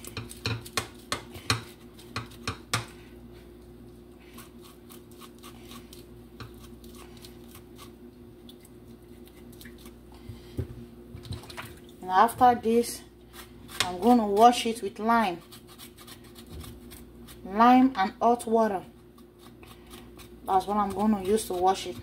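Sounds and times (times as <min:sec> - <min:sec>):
steady low hum: 0:00.0 - 0:22.0
knife scraping meat: 0:04.2 - 0:08.0, 0:13.3 - 0:17.6, 0:19.0 - 0:22.0.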